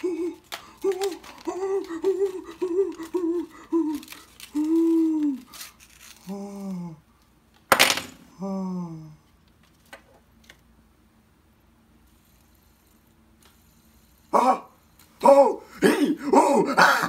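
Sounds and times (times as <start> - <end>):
man humming: 0.0 - 5.6, 6.2 - 7.1, 8.3 - 9.3, 14.3 - 17.0.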